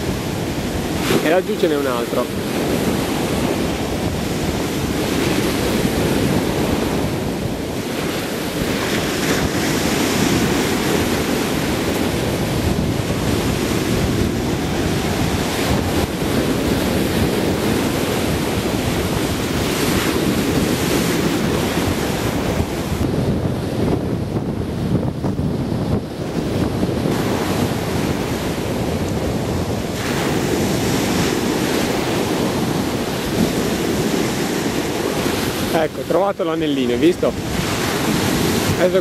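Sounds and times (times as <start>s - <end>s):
ocean surf breaking: 0.0s - 39.0s
wind buffeting microphone: 0.0s - 39.0s.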